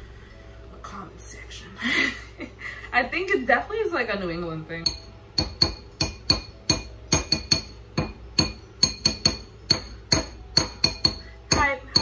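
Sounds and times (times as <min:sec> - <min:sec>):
spoon clinking against bowl: 0:04.8 - 0:12.0.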